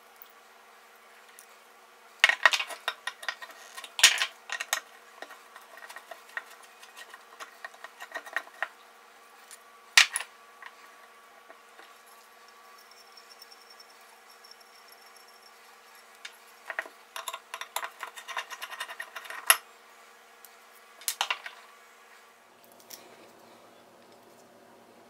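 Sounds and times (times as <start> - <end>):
light ticks and scrapes: 4.7 - 8.7.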